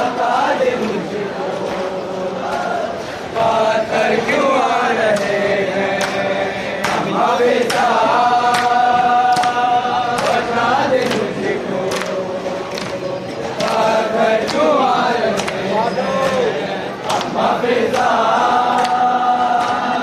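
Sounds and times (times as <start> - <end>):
men chanting together: 0.0 - 20.0
hands slapping on chests: 6.8 - 14.7, 15.3 - 16.4, 17.0 - 19.9.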